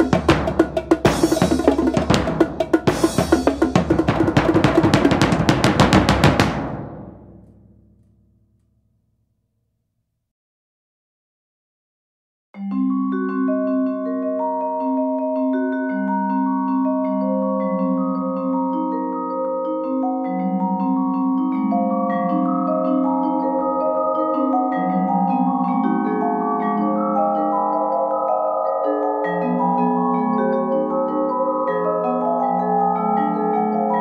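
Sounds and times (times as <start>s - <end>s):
vibraphone notes ringing: 0.0s - 5.5s, 12.6s - 34.0s.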